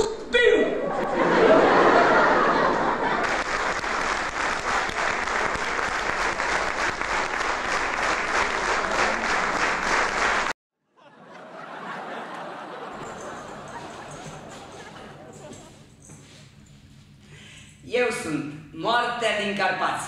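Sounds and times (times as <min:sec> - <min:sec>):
audience applauding: 0:03.1 - 0:10.5, 0:11.8 - 0:15.6.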